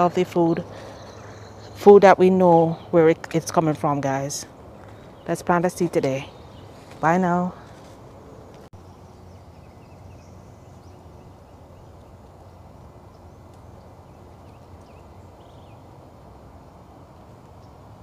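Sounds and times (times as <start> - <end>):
outdoor background noise: 0.0 - 18.0
faint bird chirps: 0.5 - 1.8.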